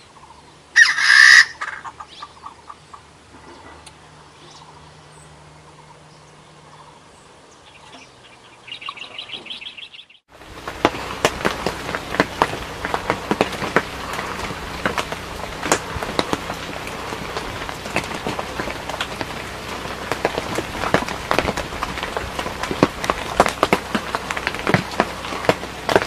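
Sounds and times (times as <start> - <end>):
raindrops pattering on leaves: 10.3 - 26.0
steady hiss: 10.3 - 26.0.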